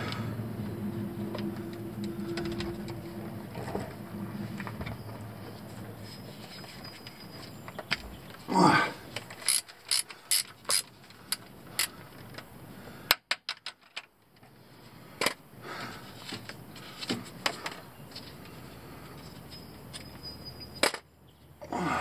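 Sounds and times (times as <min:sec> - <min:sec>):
socket wrench clicking: 0:09.4 - 0:11.9.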